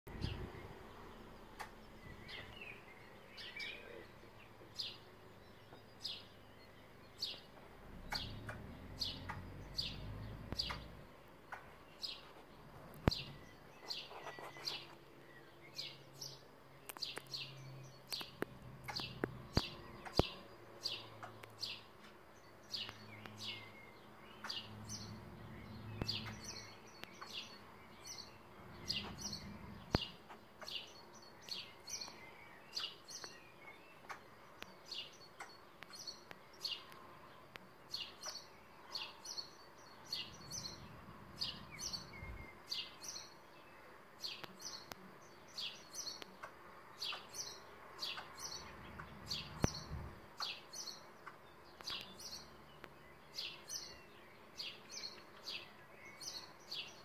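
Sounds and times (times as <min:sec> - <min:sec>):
faint low hum: 0:00.1 - 0:57.0
songbird chirping: 0:00.1 - 0:57.0
sharp clicks: 0:01.6 - 0:01.8, 0:10.5 - 0:11.7, 0:18.0 - 0:20.3.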